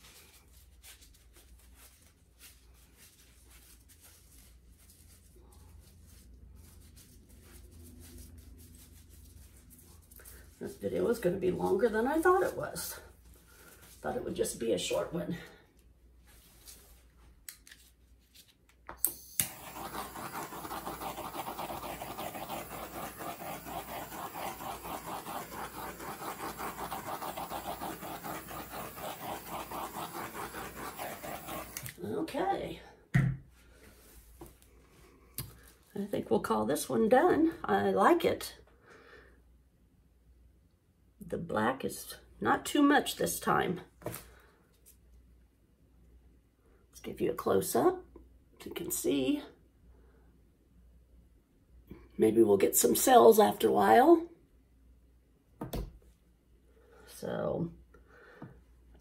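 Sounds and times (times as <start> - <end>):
gloved hand rubbing: 0.0 - 12.9, 19.4 - 32.0.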